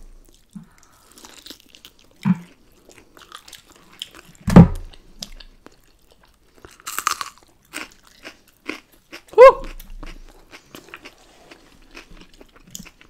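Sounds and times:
low thump: 0:04.5 - 0:04.9
crisp crunch of biting pepper: 0:06.7 - 0:13.0.

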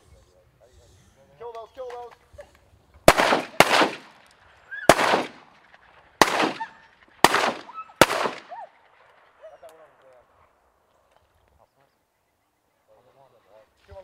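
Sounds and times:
shotgun shots with echo: 0:03.0 - 0:09.3.

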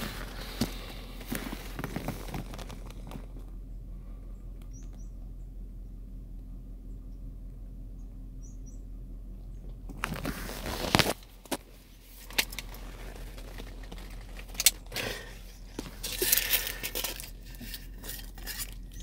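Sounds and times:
rustling: 0:00.0 - 0:03.5, 0:09.9 - 0:19.0
steady low hum: 0:00.0 - 0:19.0.

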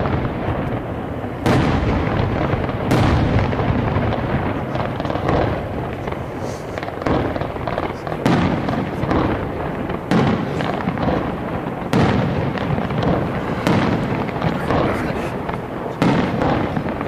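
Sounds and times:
firework shells bursting: 0:00.0 - 0:17.0
fireworks rumble and crackle: 0:00.0 - 0:17.0.

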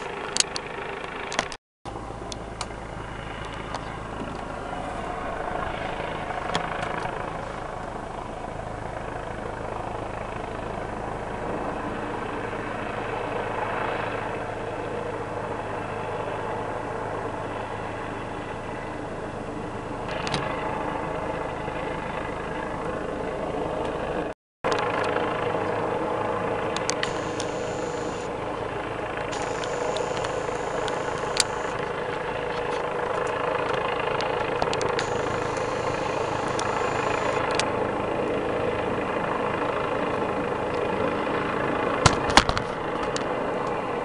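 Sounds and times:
helicopter hovering: 0:00.0 - 0:44.0
clicks: 0:29.3 - 0:31.7.

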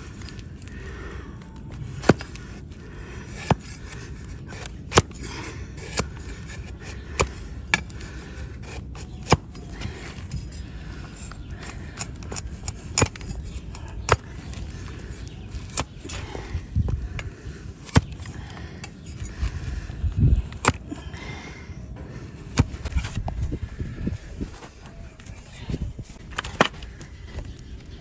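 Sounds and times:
blade scraping hoof: 0:01.7 - 0:16.6.

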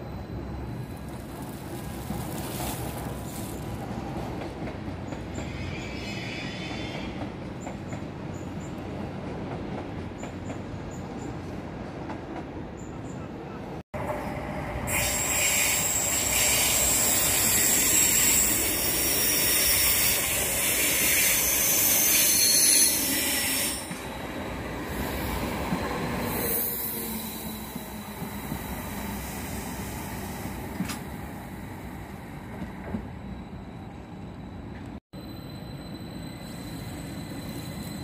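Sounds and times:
train low rumble: 0:00.0 - 0:05.8, 0:06.5 - 0:20.7
train hissing and squealing: 0:05.3 - 0:07.2, 0:14.8 - 0:30.6, 0:33.2 - 0:38.0.

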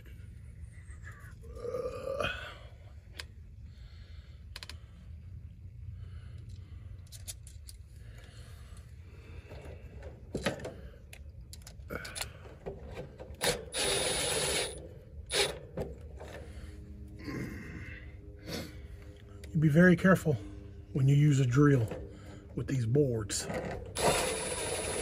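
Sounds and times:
cordless drill driving screw: 0:13.4 - 0:15.6, 0:23.5 - 0:25.0.

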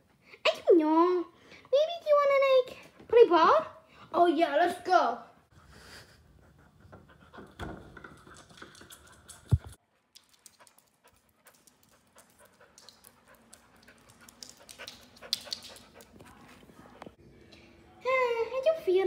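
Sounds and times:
dog panting: 0:05.6 - 0:17.1.

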